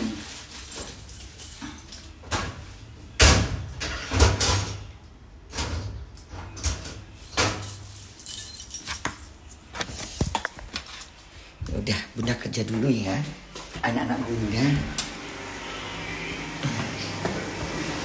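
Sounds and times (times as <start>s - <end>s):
keys jangling: 0.6s - 2.1s, 7.5s - 9.3s.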